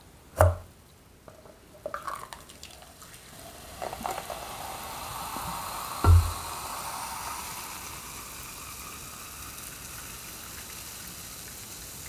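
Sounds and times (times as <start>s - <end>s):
sparkling water poured into cup: 1.9s - 12.0s
thump: 6.0s - 6.5s.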